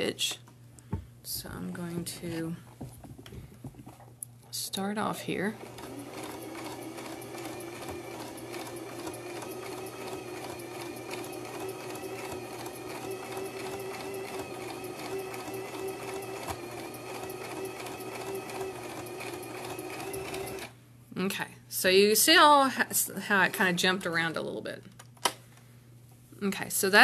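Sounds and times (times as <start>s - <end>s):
sewing machine running: 5.5s - 20.7s.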